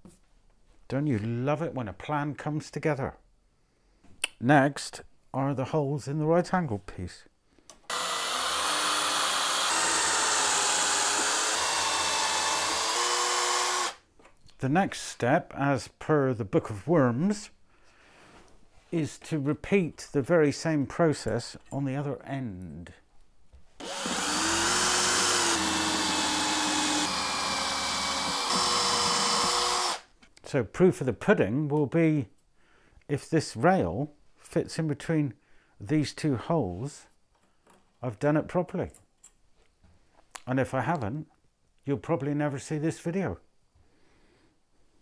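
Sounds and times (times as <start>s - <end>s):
cordless drill boring into wood: 7.9s - 14.0s, 23.8s - 30.1s.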